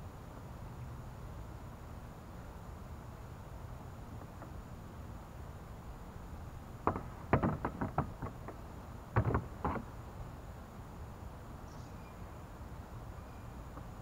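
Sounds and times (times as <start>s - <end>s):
plastic boat knocking and clattering: 4.2s - 4.6s, 6.8s - 9.9s.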